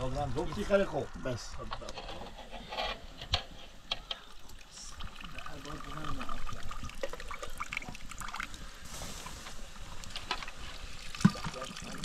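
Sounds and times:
water trickling and splashing: 4.1s - 12.0s.

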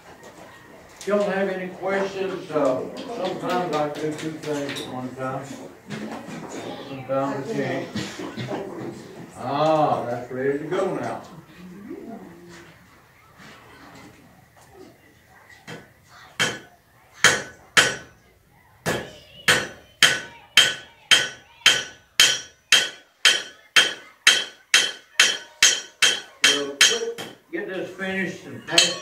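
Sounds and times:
hammer striking anvil: 17.2s - 18.1s, 18.9s - 27.4s, 28.7s - 29.0s.

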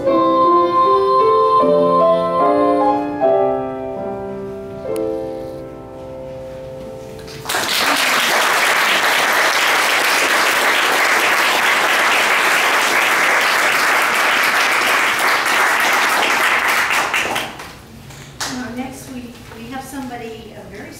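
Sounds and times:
audience applause: 7.3s - 17.8s.

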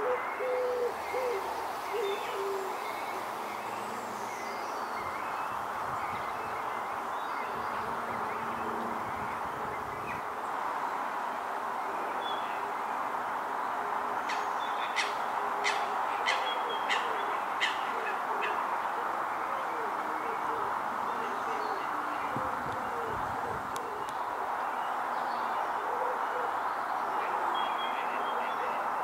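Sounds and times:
birds calling: 0.0s - 10.5s, 14.3s - 28.7s
background hiss: 0.0s - 27.9s.

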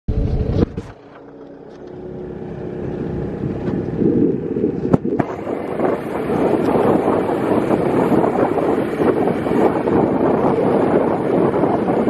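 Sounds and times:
vehicle engine and road noise: 0.1s - 12.0s.

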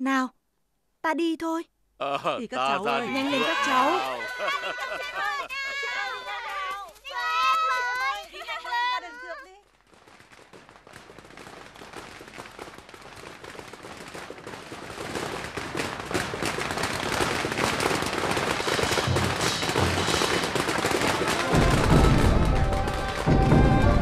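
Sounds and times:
firecrackers crackling: 2.6s - 24.0s
large drum beats: 15.1s - 24.0s.

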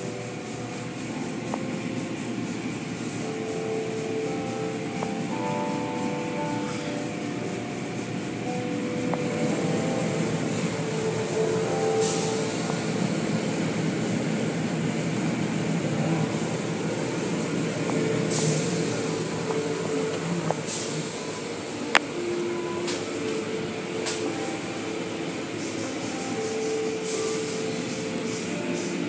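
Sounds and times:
car wash water and machinery: 0.0s - 29.0s
hissing bursts of spray: 0.1s - 22.3s.

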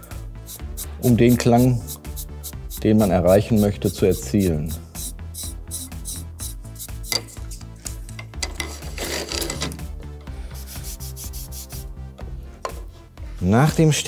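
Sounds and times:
sandpaper rasping on felt: 0.4s - 7.6s, 10.5s - 11.9s.

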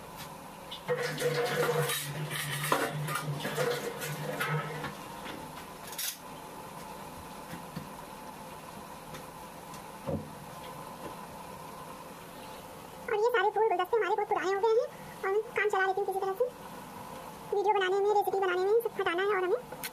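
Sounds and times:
dishes and utensils clattering: 0.9s - 4.9s.

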